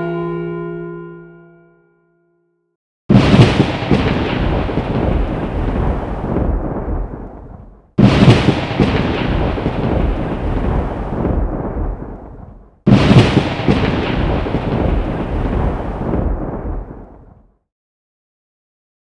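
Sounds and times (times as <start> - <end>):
deep rumbling thunder boom: 3.1 - 17.5.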